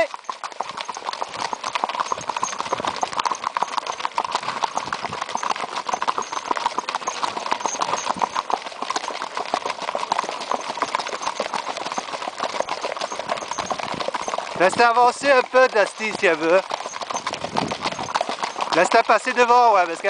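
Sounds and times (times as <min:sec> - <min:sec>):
hoofbeats on gravel: 0:00.0 - 0:20.0.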